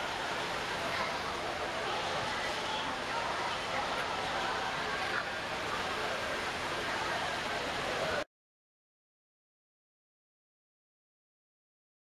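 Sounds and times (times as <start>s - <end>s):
noisy background ambience: 0.0s - 8.3s.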